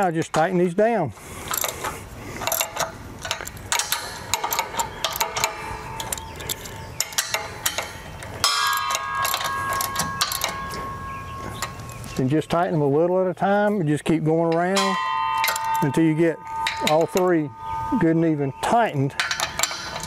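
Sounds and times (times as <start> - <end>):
socket ratchet wrench clicking: 1.5 - 10.6
steady high ringing tone: 5.2 - 12.2, 14.8 - 20.0.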